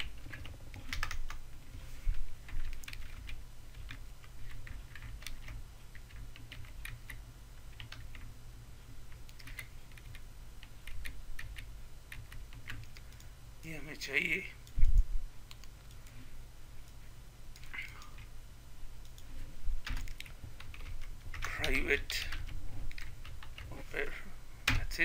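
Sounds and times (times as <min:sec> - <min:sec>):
keyboard typing: 0:00.0 - 0:01.4, 0:02.4 - 0:08.3, 0:09.1 - 0:13.3, 0:16.8 - 0:18.3, 0:19.0 - 0:23.8
steady low hum: 0:00.0 - 0:25.0.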